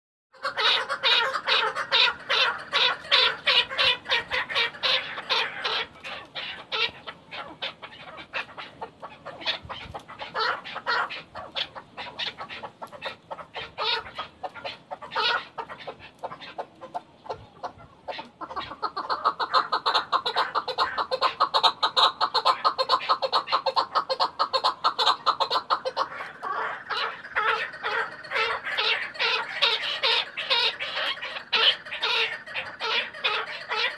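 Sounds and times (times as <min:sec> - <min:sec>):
partridge clucking calls: 0:00.4 - 0:33.9.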